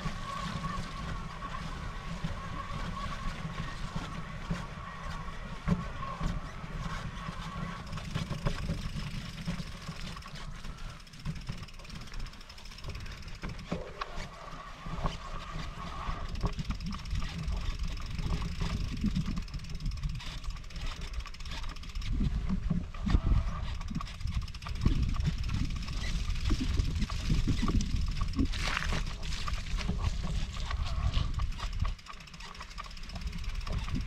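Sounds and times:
bike rolling and rattling: 0:00.0 - 0:34.0
wind rumbling on microphone: 0:00.0 - 0:34.0
scattered clicks: 0:16.2 - 0:34.0.

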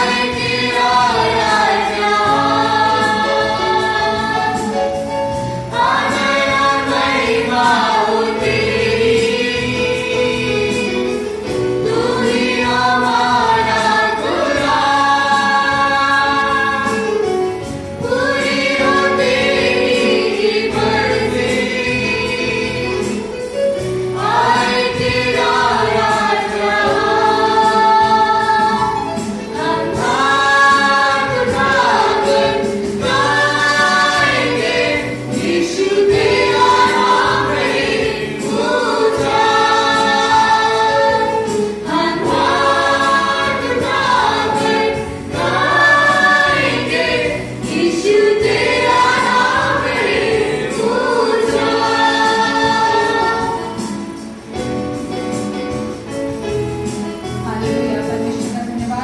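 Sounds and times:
group singing into microphones: 0:00.0 - 0:54.6.

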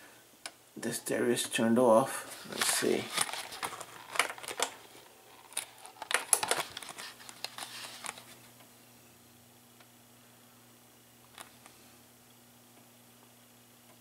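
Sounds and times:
faint steady hum: 0:00.0 - 0:14.0
equipment handling clicks and rustles: 0:02.5 - 0:04.8, 0:05.4 - 0:08.3.

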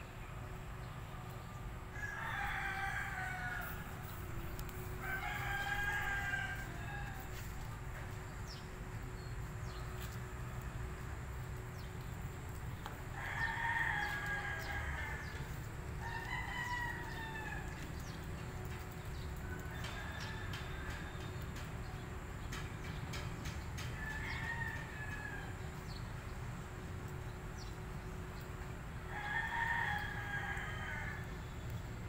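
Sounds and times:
rooster crowing: 0:01.9 - 0:07.6, 0:13.2 - 0:18.0, 0:19.5 - 0:21.2, 0:24.0 - 0:25.6, 0:29.1 - 0:31.3
steady low rumble: 0:03.1 - 0:19.5.

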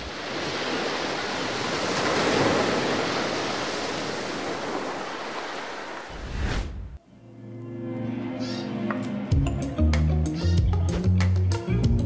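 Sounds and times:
sea surf washing on shore: 0:00.0 - 0:06.8.

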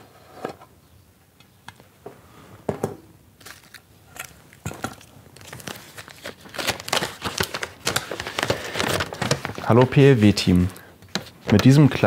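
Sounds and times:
paper rustling: 0:03.4 - 0:12.0.

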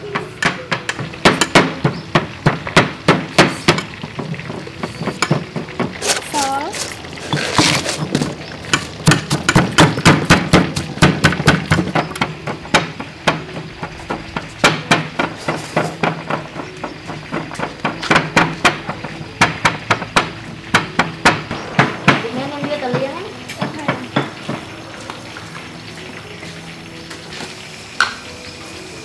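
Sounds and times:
pestle pounding in a mortar: 0:07.3 - 0:22.8.

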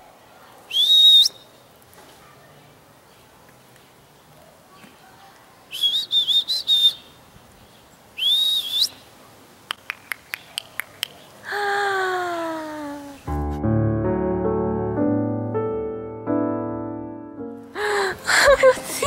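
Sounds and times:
person whistling: 0:00.7 - 0:01.4, 0:05.8 - 0:07.0, 0:08.2 - 0:08.9
tongue clicks: 0:09.7 - 0:11.4.

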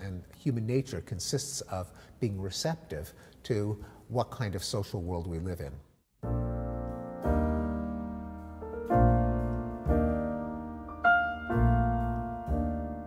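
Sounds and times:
piano chords ringing: 0:06.2 - 0:13.0.

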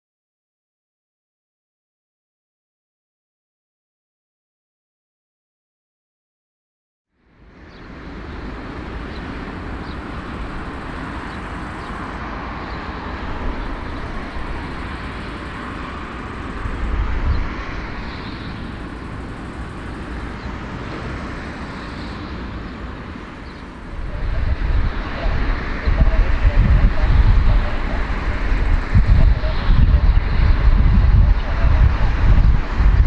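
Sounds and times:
jet engines rumbling: 0:07.3 - 0:33.0.

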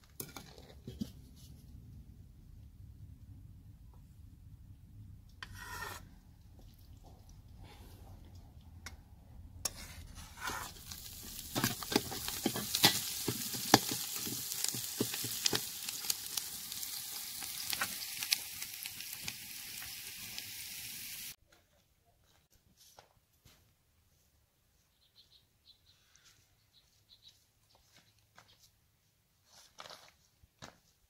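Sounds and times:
metal ladle scraping a pot: 0:05.4 - 0:06.2, 0:09.6 - 0:14.3
onions sizzling in hot oil: 0:10.3 - 0:21.4.

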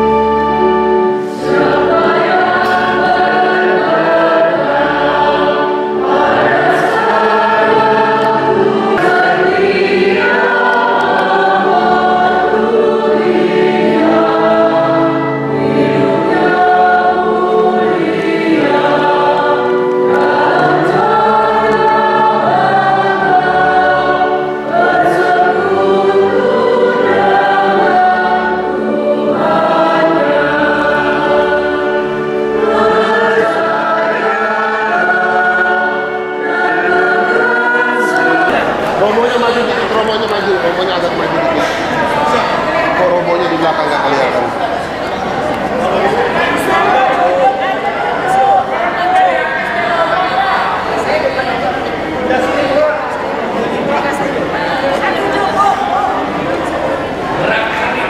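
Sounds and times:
choir singing a hymn: 0:00.0 - 0:58.0
sustained instrumental accompaniment: 0:00.0 - 0:58.0.

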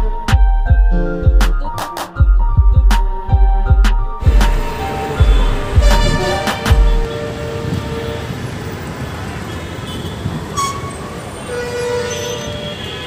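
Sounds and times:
background music with a beat: 0:00.0 - 0:07.1
car horn: 0:04.2 - 0:13.0
traffic rumble: 0:04.2 - 0:13.0.

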